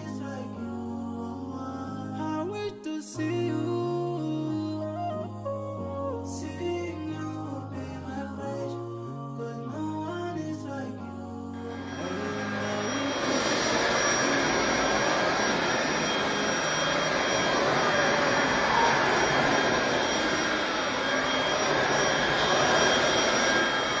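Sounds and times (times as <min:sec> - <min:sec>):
stick vacuum running on rug: 0:12.0 - 0:24.0.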